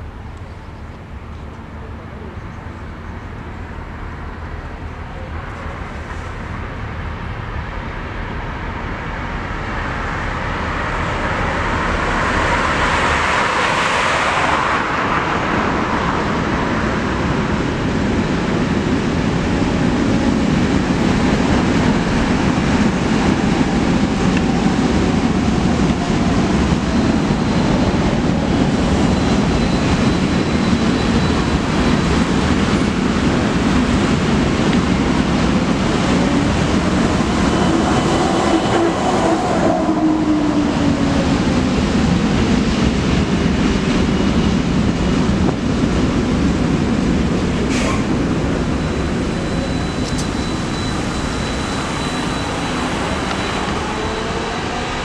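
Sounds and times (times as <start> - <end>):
trolleybus tyre and road noise: 0.0 - 55.0
faint high whine: 48.6 - 55.0.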